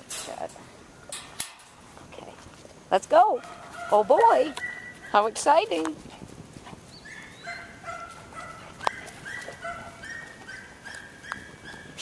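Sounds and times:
dog whining: 7.0 - 12.0.

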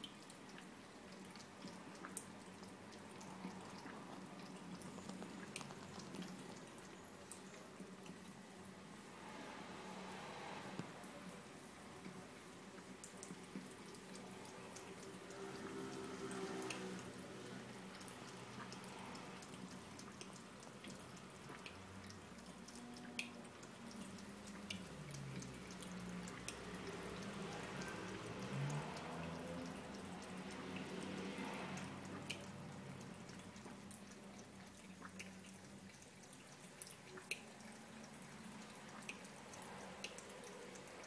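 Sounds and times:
cat lapping water: 0.0 - 8.7, 10.0 - 41.0
water drips: 0.0 - 41.0
tap water trickling into sink: 12.9 - 41.0.

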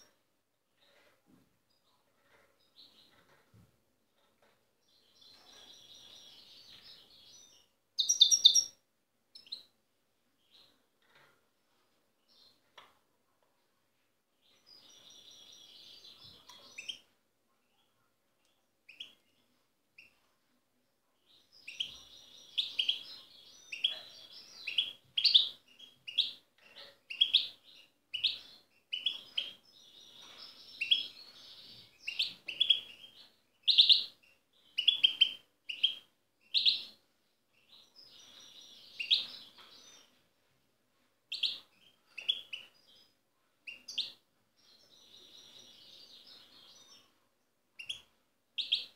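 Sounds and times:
goldfinch singing: 5.0 - 8.7.

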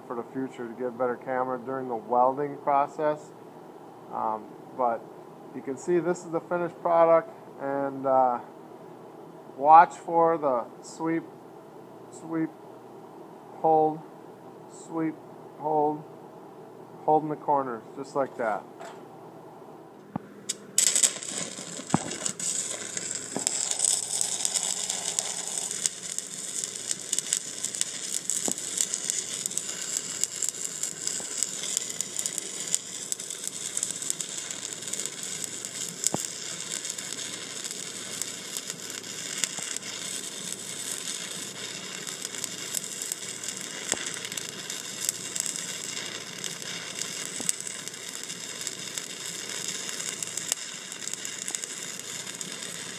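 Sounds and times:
welding arc crackling: 20.1 - 52.9.

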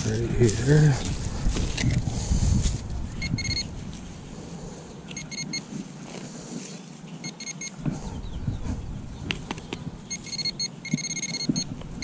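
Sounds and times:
rapid high beeps: 3.2 - 3.7, 5.1 - 5.6, 7.2 - 7.8, 10.1 - 11.7.

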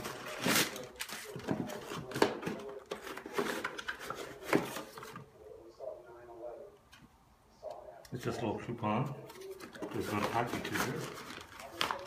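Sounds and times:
packing paper rustling and crinkling: 0.0 - 5.2, 9.3 - 12.0.

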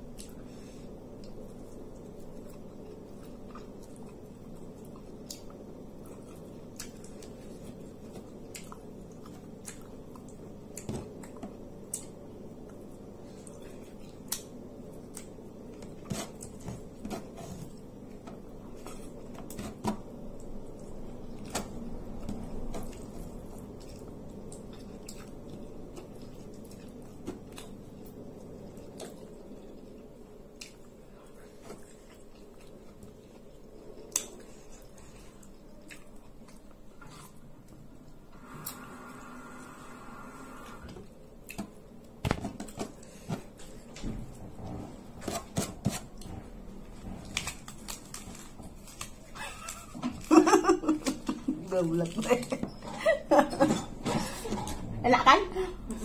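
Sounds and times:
person chewing soft food: 0.0 - 38.8
steady low hum: 0.0 - 56.0.

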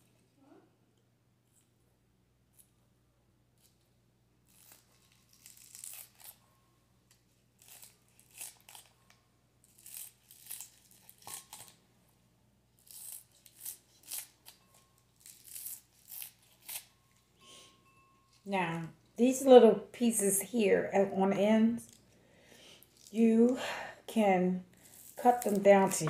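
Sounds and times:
shears snipping green onions: 24.9 - 26.0.

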